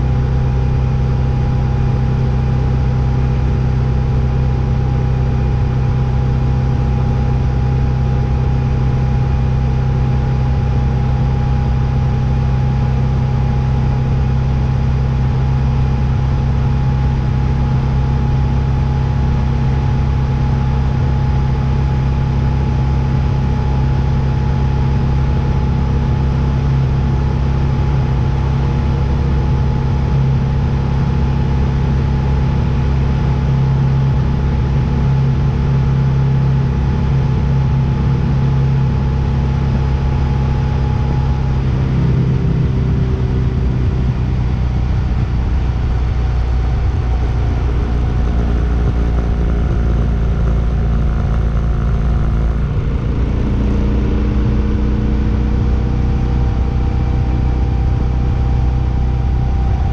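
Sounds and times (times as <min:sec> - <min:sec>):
low mechanical drone: 0:00.0 - 0:59.9
constant mid-pitched tone: 0:32.4 - 0:59.9.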